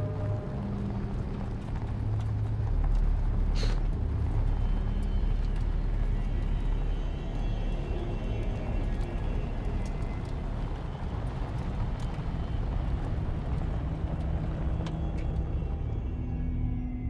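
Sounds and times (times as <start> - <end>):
car road noise rumble: 8.2 - 16.1.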